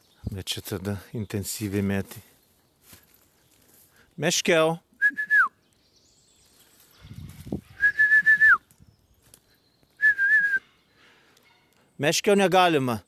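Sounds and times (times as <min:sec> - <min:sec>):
man whistling: 0:05.0 - 0:05.6, 0:07.8 - 0:08.6, 0:10.0 - 0:10.7.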